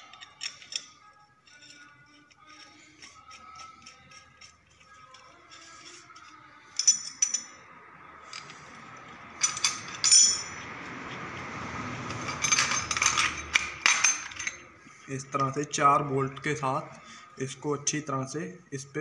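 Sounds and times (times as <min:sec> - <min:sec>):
metal tools clinking: 0:00.0 - 0:08.6, 0:09.4 - 0:10.6, 0:12.1 - 0:15.7.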